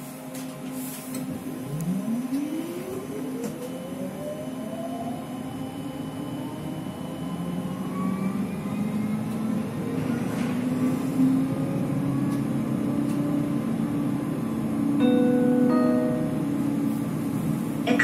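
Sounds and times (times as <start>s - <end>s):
tram wheels rumbling on track: 7.6s - 15.0s, 16.3s - 18.0s.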